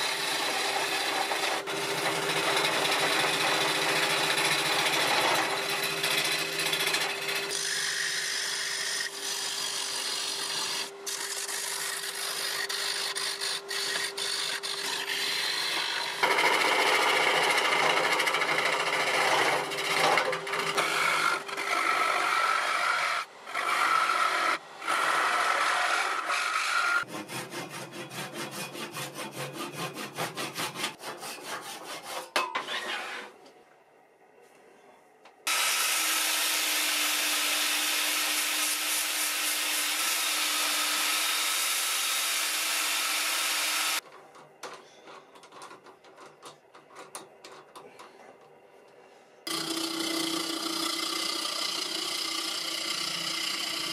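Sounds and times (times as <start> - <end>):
gouge scraping wood on lathe: 0.0 - 33.3, 49.5 - 53.9
lathe motor hum: 49.5 - 53.9.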